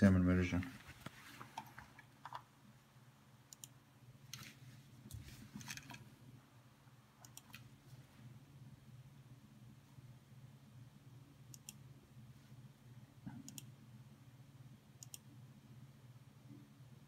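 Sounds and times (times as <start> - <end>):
low steady hum: 0.0 - 17.0
computer mouse clicks: 3.5 - 4.5, 7.2 - 7.7, 11.5 - 11.8, 13.3 - 13.7, 15.0 - 15.3.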